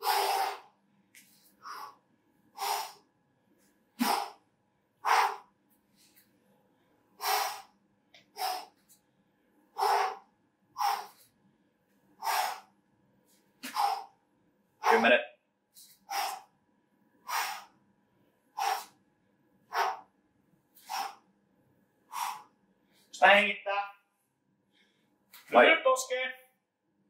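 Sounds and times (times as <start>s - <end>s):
person exhaling forcefully: 0.0s - 0.7s, 4.0s - 4.4s, 5.0s - 5.5s, 7.2s - 7.7s, 8.4s - 8.7s, 9.8s - 10.2s, 10.8s - 11.2s, 12.2s - 12.7s, 13.6s - 14.1s, 16.1s - 16.5s, 17.3s - 17.7s, 18.6s - 19.0s, 20.8s - 21.2s, 22.1s - 22.5s.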